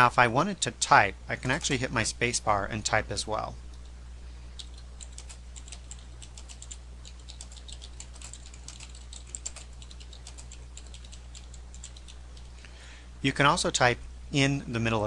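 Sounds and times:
low steady hum: 0.0 - 15.0
computer keyboard typing: 4.6 - 12.5.

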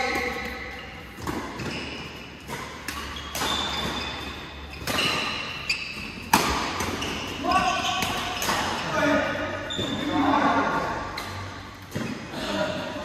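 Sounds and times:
racket hitting shuttlecock: 0.0 - 8.9
shoes squeaking on court: 0.1 - 8.8, 9.4 - 12.3.

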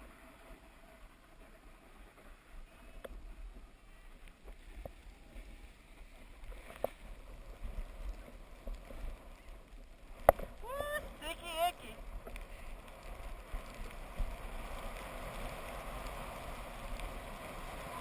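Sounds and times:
skis scraping on snow: 0.0 - 18.0
wind rumble on microphone: 11.8 - 18.0.

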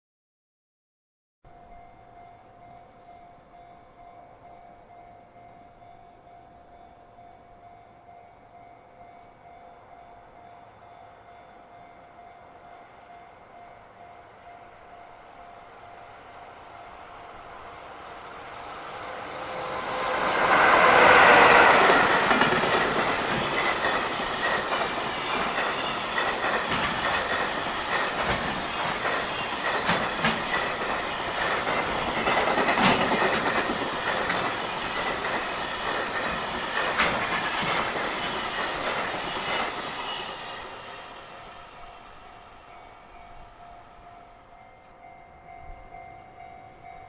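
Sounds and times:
level crossing warning bell: 1.5 - 40.9, 41.7 - 47.0
locomotive passing: 15.2 - 43.4
train wheels clickety-clack: 18.8 - 41.0.

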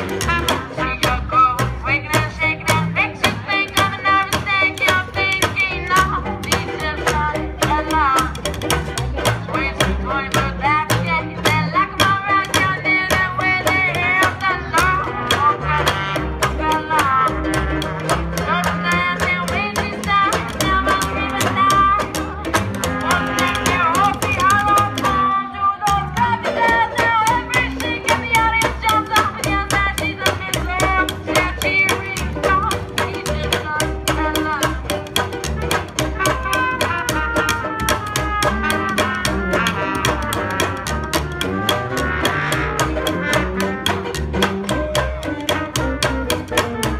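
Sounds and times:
saxophone: 0.0 - 1.6, 13.3 - 32.7, 35.4 - 46.9
trumpet: 0.0 - 1.6, 14.6 - 19.7, 20.4 - 27.6, 35.3 - 46.9
strummed banjo: 0.0 - 46.9
strummed guitar: 0.0 - 46.9
upright bass: 0.0 - 46.9.

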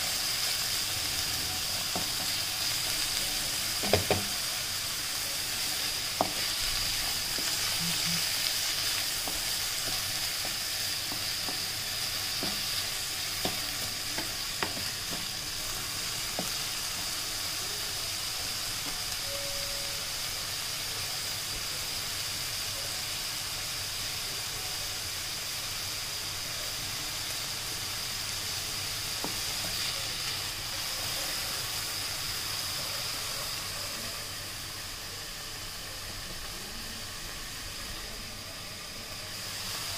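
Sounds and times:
vegetables sizzling in hot oil: 0.0 - 39.9
wooden spatula knocking on pan: 3.8 - 4.3, 13.4 - 15.3.

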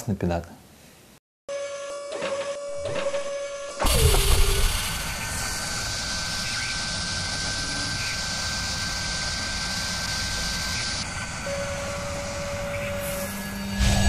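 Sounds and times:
machine-like whirring drone: 1.5 - 14.0
thin high whine: 1.5 - 14.0
rumble: 3.0 - 14.0
hiss: 3.8 - 11.4.

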